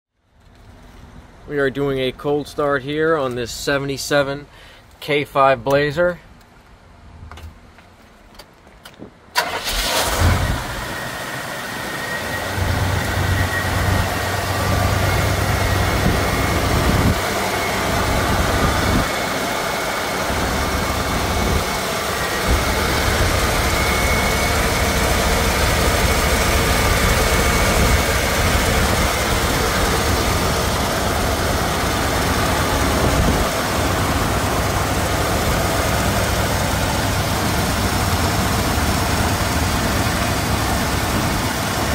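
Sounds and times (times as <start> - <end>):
car engine cranking and starting: 9.3 - 41.9
car engine idling: 9.4 - 41.9.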